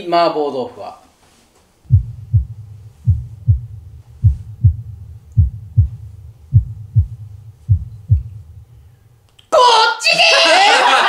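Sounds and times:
steady low hum: 1.8 - 9.2
heartbeat thumps: 1.9 - 8.8.

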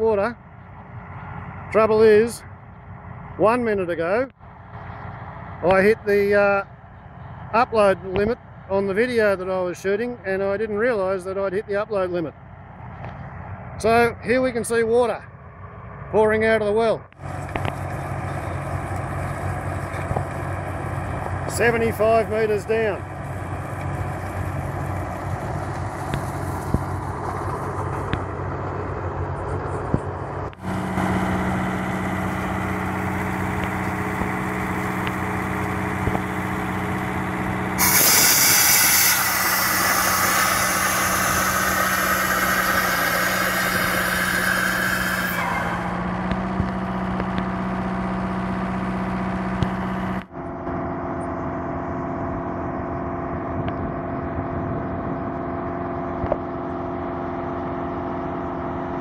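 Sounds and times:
drilling rig engine and compressor droning: 0.0 - 59.0
water and air gushing from pipe: 37.8 - 46.0
loud rushing hiss: 37.8 - 46.1.

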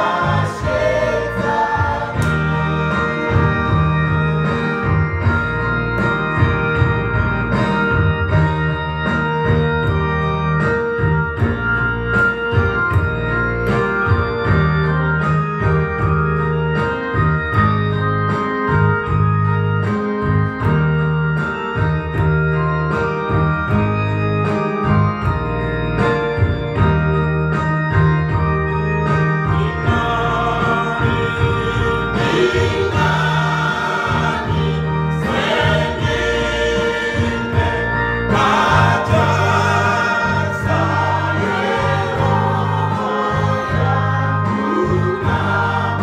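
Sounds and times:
steady beat: 0.0 - 8.5, 29.5 - 46.0
organ-voiced keyboard gospel music: 0.0 - 46.0.

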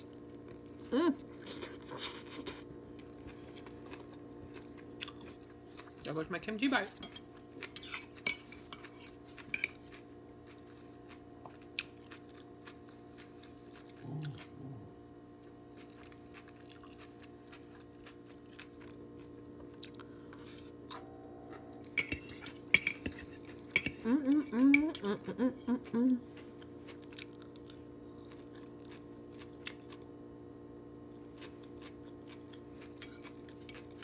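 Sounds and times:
close-up chewing and crunching: 0.0 - 6.5, 7.2 - 30.2, 31.0 - 34.0
low background hum: 0.0 - 34.0
utensils clinking on a plate: 7.0 - 9.9, 21.9 - 25.2, 33.0 - 34.0
person humming: 14.0 - 15.0, 24.0 - 26.3.

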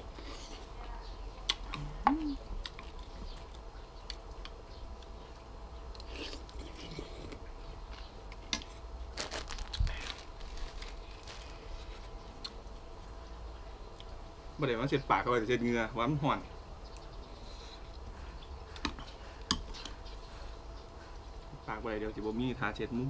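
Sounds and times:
person chewing: 5.9 - 12.6
rustling: 9.1 - 12.2.

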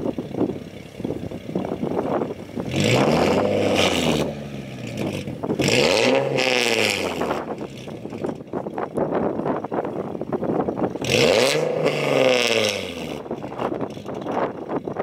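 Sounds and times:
car engine revving: 1.8 - 8.4, 10.8 - 14.3.

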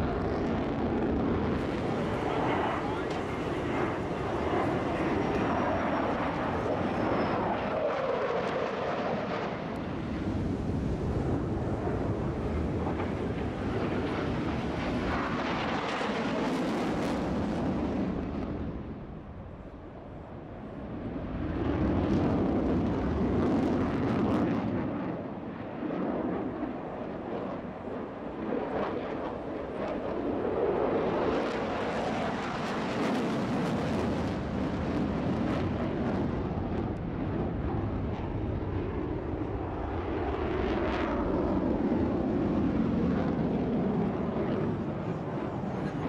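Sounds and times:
fighter jet roar: 0.0 - 19.3.

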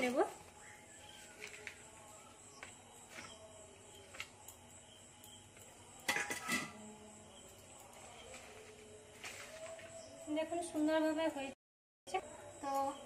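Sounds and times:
spoon clattering against plate: 6.0 - 6.8
steel utensils clinking: 6.0 - 6.8.

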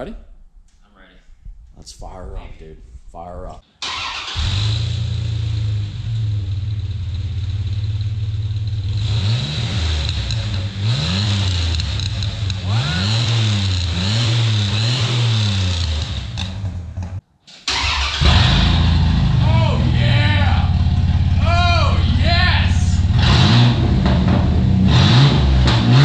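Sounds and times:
truck engine idling and revving: 3.9 - 17.2, 17.8 - 26.0
straight-piped engine idling rough: 18.2 - 24.8.

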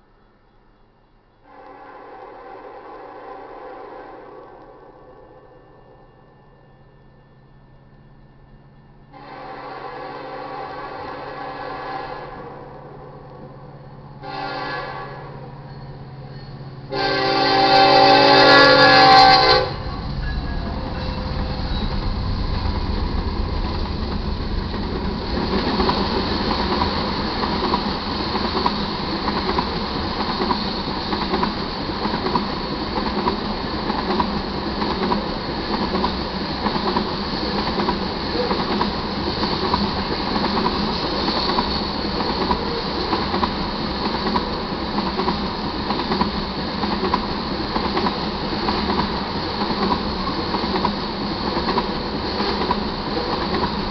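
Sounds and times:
diesel locomotive rumble: 15.4 - 30.3
train wheels clattering on rails: 15.6 - 53.9.

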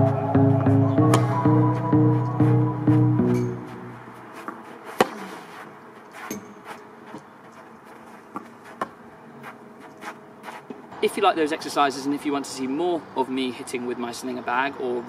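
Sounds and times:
tennis balls bouncing: 0.9 - 1.9, 2.9 - 9.1
racket striking ball: 1.0 - 1.8, 2.9 - 6.8.

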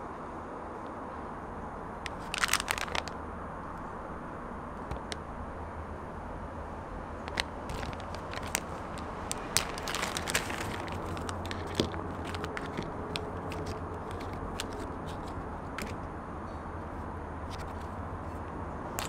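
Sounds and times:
foil bags crinkling: 2.1 - 3.2, 7.3 - 16.0.

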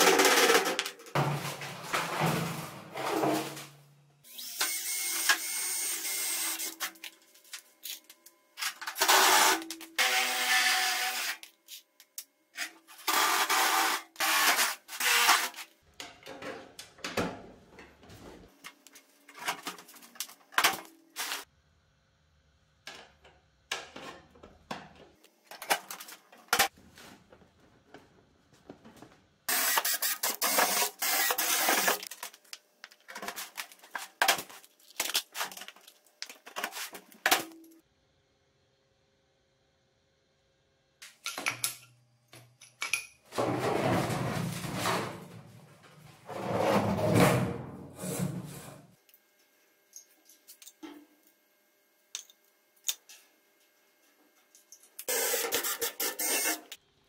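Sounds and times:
cordless drill drilling metal sheet: 29.5 - 32.1, 55.1 - 56.7.

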